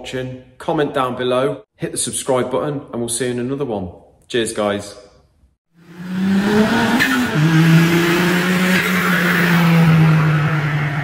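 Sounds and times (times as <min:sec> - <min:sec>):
car engine at high revs: 0:05.7 - 0:11.0.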